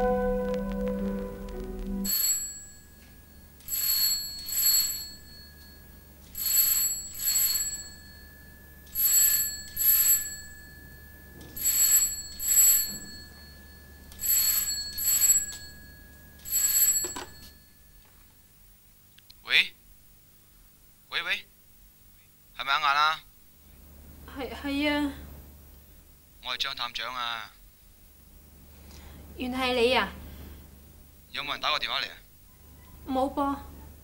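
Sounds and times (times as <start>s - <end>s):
telephone bell ringing: 2.0s - 18.0s.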